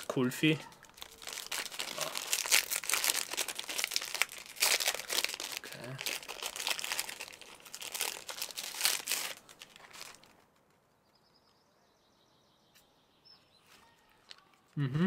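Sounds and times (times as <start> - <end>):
plastic packaging crinkling: 0.0 - 10.9.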